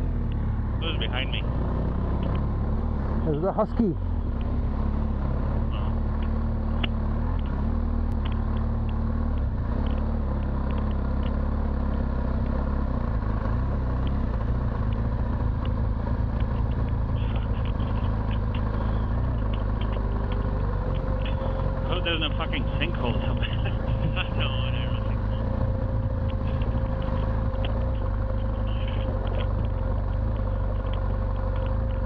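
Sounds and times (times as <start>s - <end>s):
motorcycle engine running: 0.0s - 32.0s
wind and tyre noise: 0.0s - 32.0s
light ticks: 0.3s - 0.5s, 2.2s - 2.5s, 4.3s - 4.6s, 6.1s - 12.6s, 14.8s - 17.0s, 19.4s - 21.4s, 26.2s - 32.0s.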